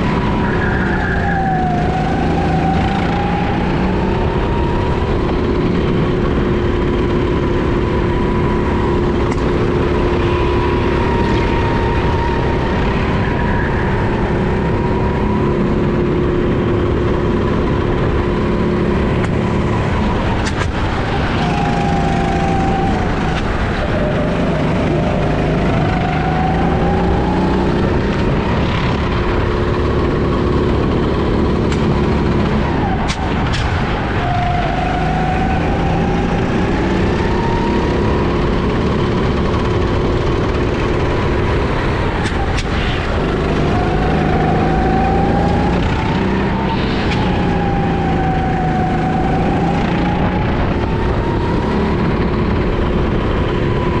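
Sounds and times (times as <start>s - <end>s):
go-kart engine revving: 0.0s - 54.0s.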